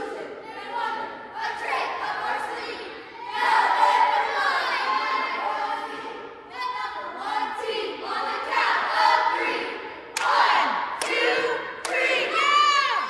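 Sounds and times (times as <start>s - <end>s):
girls yelling a cheer in unison: 0.0s - 13.0s.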